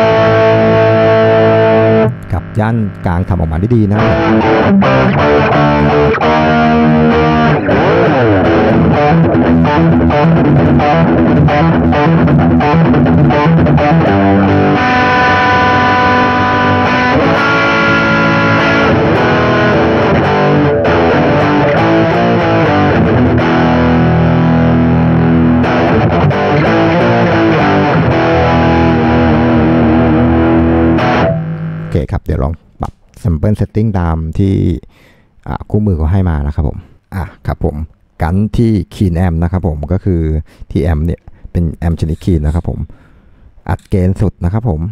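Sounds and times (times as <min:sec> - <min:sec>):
distorted electric guitar riffs: 0:00.0 - 0:32.0.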